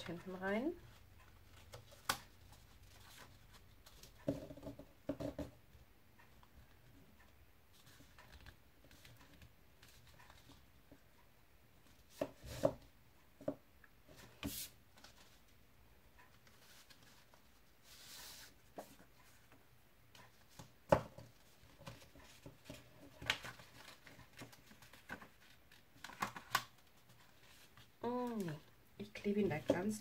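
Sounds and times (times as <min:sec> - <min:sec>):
paper rustling: 0:21.4 - 0:28.6.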